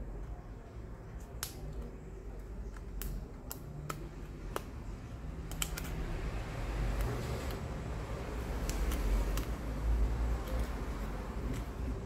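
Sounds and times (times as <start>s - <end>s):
sharp light clicks: 5.4s - 6.0s.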